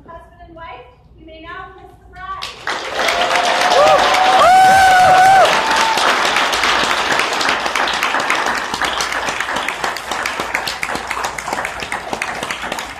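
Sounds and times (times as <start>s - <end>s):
crowd applauding: 2.5s - 12.9s.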